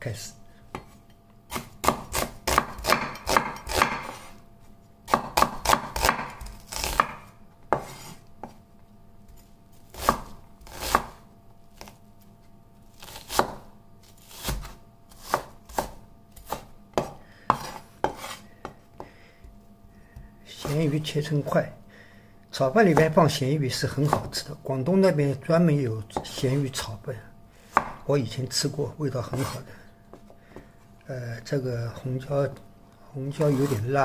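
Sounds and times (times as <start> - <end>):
knife chopping on wooden board: 0.7 - 4.3, 5.1 - 8.6, 9.9 - 11.2, 13.0 - 19.6, 22.9 - 23.2, 26.1 - 26.5, 27.7 - 28.0, 29.3 - 30.7, 33.4 - 33.8.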